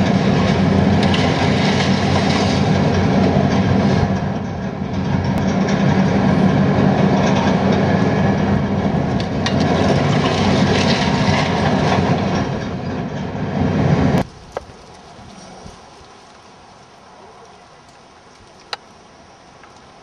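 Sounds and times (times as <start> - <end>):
diesel engine under load: 0.0 - 14.3
debris clattering: 9.2 - 12.8.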